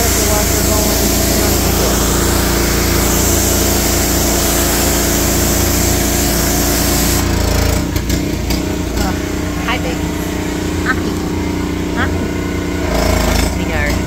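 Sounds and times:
hiss of water spray: 0.0 - 7.4
pressure washer motor drone: 0.0 - 14.0.

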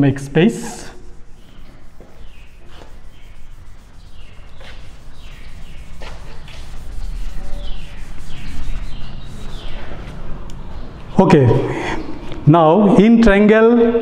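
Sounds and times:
duster scraping on chalkboard: 0.5 - 9.9.

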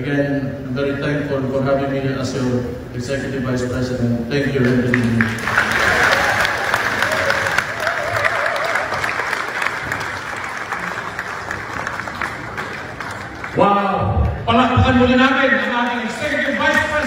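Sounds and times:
audience applauding: 4.9 - 13.6.

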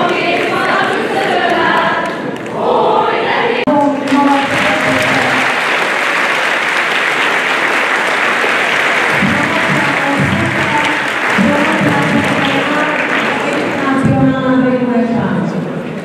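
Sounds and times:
group singing: 0.0 - 5.4
crowd applauding: 3.7 - 14.2.

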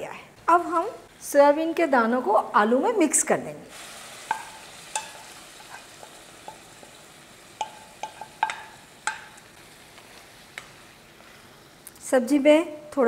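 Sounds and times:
curry sizzling: 0.4 - 12.5
spatula knocking metal pan: 7.6 - 9.4.

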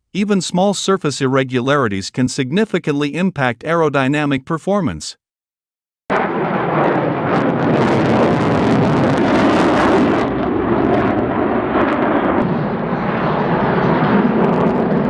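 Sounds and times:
fighter jet flying overhead: 6.1 - 15.0.

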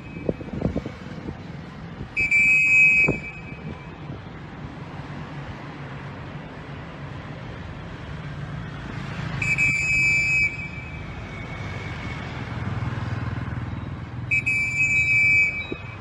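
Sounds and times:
traffic hum: 0.0 - 16.0
high whistle blasts: 2.1 - 4.0, 9.4 - 12.4, 14.3 - 16.0.

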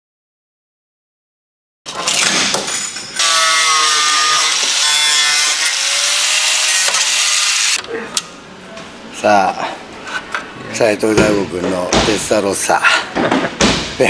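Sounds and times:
cut-off tool cutting metal: 3.2 - 7.8.

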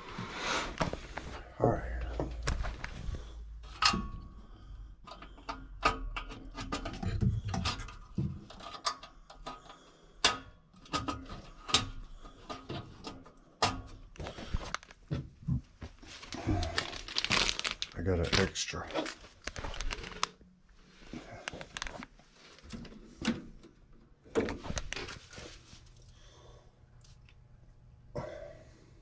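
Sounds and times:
tools clicking inside metal cabinet: 3.6 - 4.3, 5.0 - 14.1.

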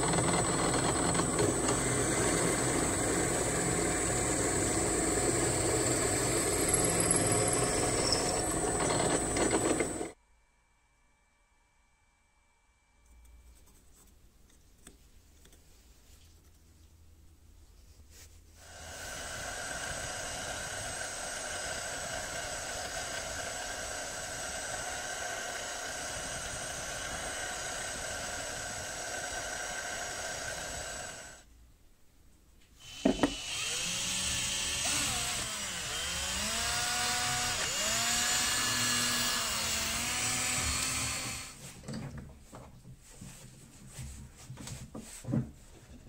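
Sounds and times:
drill press drilling wood: 0.0 - 10.2, 18.6 - 31.4, 32.8 - 41.6
motor changing speed: 0.0 - 10.2, 32.8 - 41.6.

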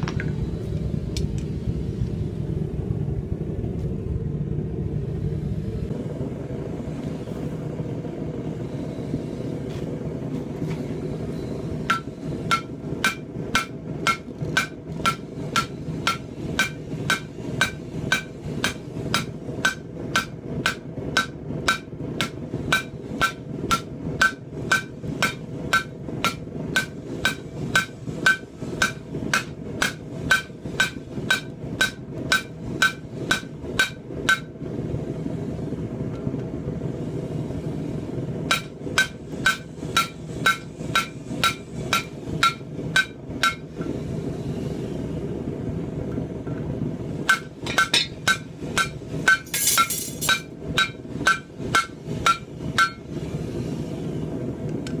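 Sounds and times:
low rumble: 0.0 - 15.0
hammer ringing on anvil: 38.5 - 43.6, 47.3 - 53.0.

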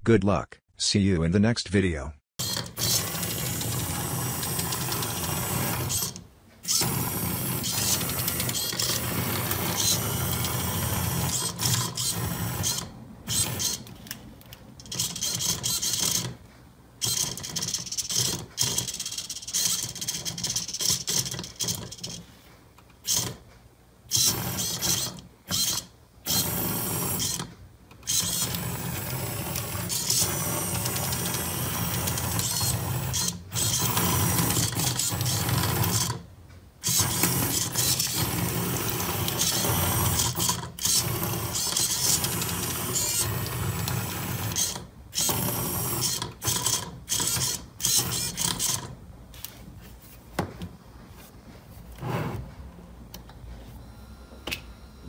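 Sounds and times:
robot motors whirring and clattering: 2.4 - 14.2, 14.8 - 16.3, 17.0 - 22.2, 24.1 - 36.2, 36.8 - 48.9.

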